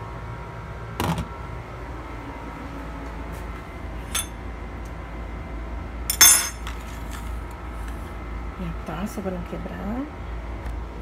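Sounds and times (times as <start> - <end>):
steady low hum: 0.0 - 11.0
ceramic bowl clinking in steel sink: 6.1 - 6.7.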